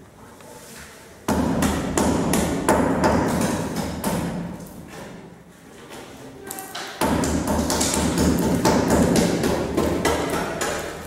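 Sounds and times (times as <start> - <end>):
hammer striking masonry wall: 1.3 - 5.2, 6.9 - 11.0.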